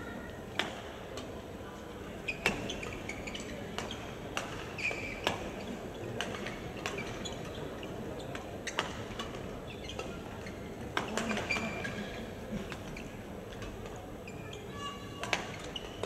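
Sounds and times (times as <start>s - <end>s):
shoe squeaks on court: 2.3s - 4.1s, 4.8s - 5.8s, 9.7s - 12.1s.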